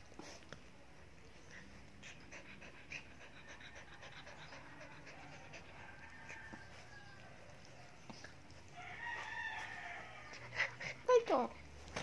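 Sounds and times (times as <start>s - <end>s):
puppy panting quickly: 1.5s - 6.7s, 10.3s - 11.4s.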